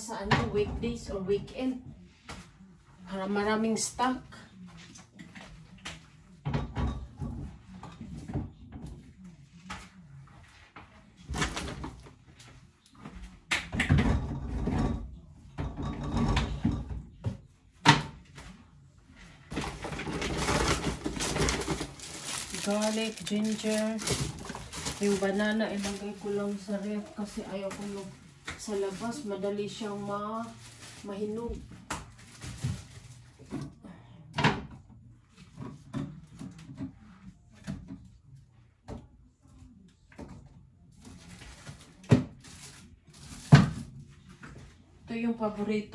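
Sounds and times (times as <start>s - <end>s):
rustling: 19.2s - 33.5s
items knocking against shelves: 19.5s - 26.0s
plastic packaging rustling: 19.5s - 33.5s, 41.2s - 43.9s.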